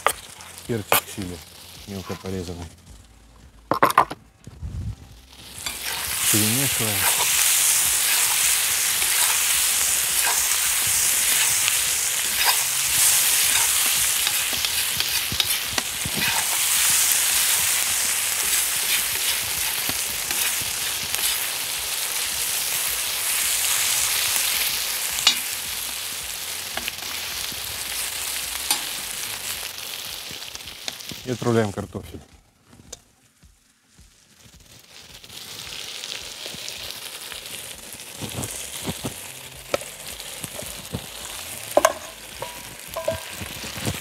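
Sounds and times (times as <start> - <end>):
food sizzling in hot oil: 0.0 - 2.9, 5.1 - 31.7, 32.8 - 44.0
metal spatula scraping a pot: 7.0 - 21.5.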